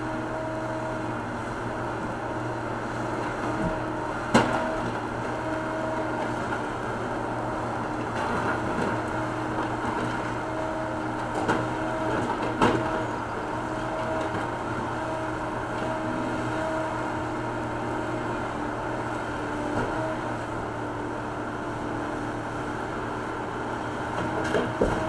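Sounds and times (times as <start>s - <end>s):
diesel engine running under load: 0.0s - 25.0s
hydraulic boom digging concrete: 24.1s - 25.0s.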